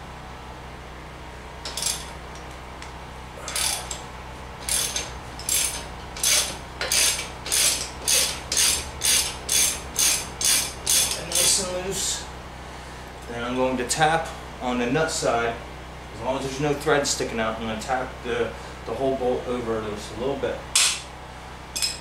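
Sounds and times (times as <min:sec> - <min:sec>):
socket ratchet clicking: 0:04.7 - 0:11.5.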